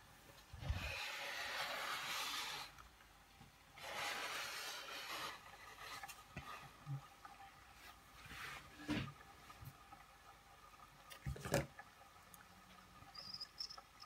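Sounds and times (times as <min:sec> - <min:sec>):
steam hissing from toy engine: 0:00.8 - 0:02.7.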